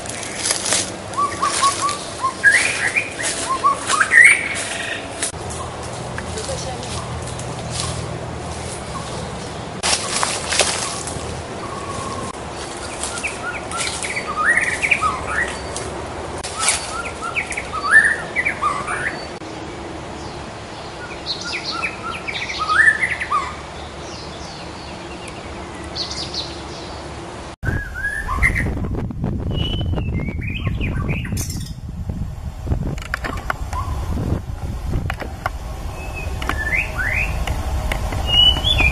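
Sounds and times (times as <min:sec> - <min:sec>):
bird singing whistled phrases: 0:01.2 - 0:05.0, 0:29.5 - 0:31.8, 0:36.0 - 0:37.4, 0:38.2 - 0:38.9.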